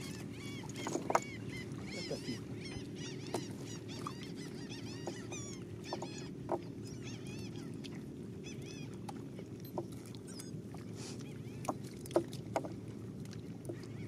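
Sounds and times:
birds chirping: 0:00.0 - 0:07.8.

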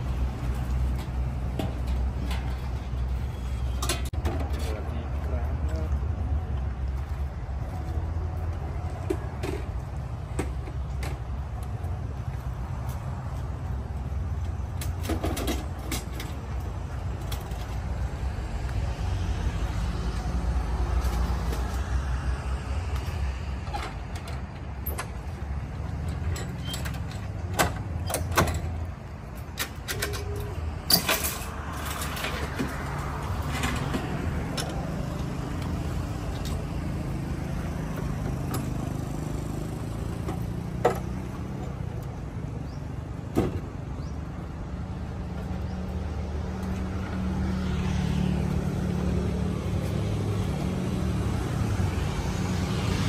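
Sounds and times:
metal and wood clanks: 0:26.0 - 0:34.8.

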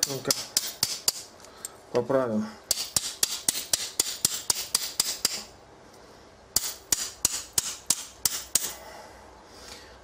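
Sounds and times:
hammer tapping on steel: 0:02.7 - 0:05.5, 0:06.6 - 0:08.8.

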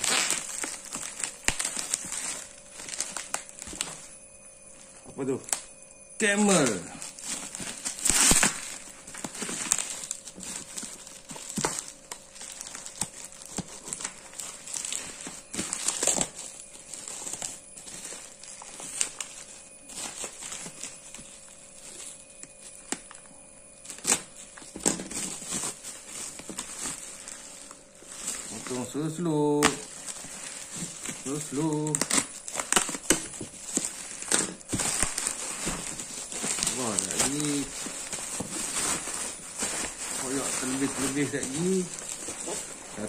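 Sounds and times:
bubble wrap crinkling: 0:00.0 - 0:43.0.

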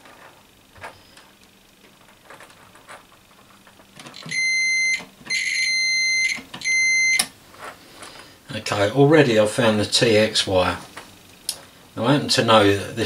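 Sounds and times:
multimeter continuity buzzer beeping: 0:04.1 - 0:07.4.

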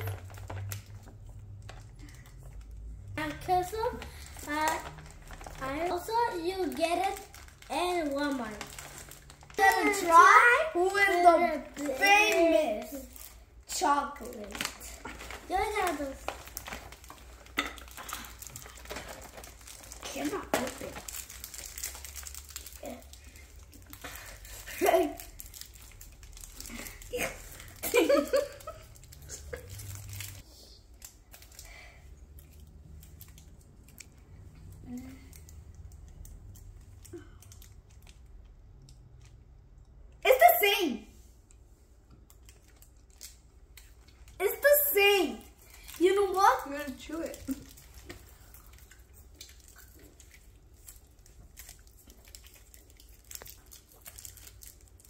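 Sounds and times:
wrappers crinkling and tearing: 0:00.0 - 0:38.5, 0:42.3 - 0:55.0
chewing chocolate bar: 0:14.6 - 0:27.8, 0:47.3 - 0:55.0.

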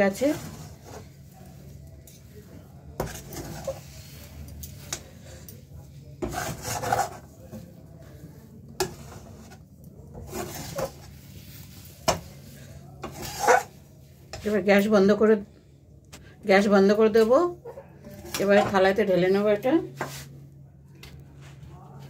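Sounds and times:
metal spatula scraping paste: 0:00.0 - 0:14.6.

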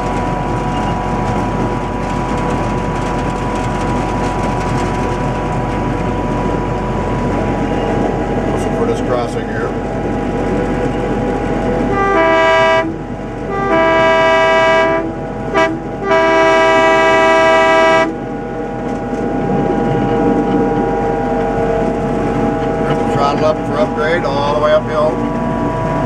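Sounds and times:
locomotive running and wheel noise: 0:00.0 - 0:26.0
locomotive horn blasts: 0:11.8 - 0:18.2.

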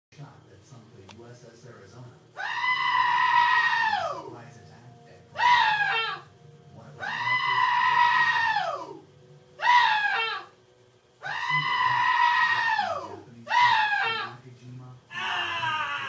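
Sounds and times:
cry-like call sound effect: 0:05.4 - 0:06.3, 0:09.6 - 0:10.5.

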